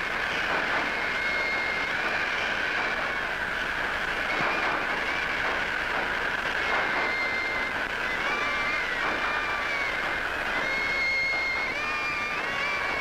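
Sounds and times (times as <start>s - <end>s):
high squeals: 0.0s - 13.0s
train wheels rattling: 0.0s - 13.0s.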